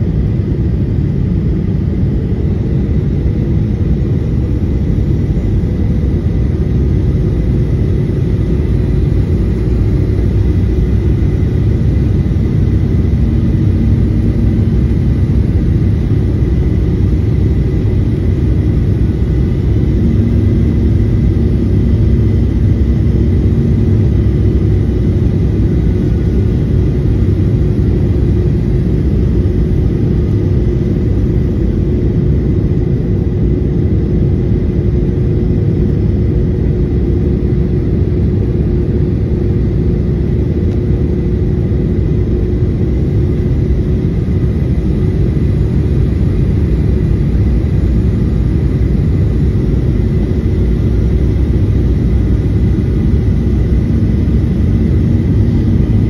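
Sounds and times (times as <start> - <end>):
jet engine rumble: 0.0 - 56.0
low hum: 0.0 - 56.0.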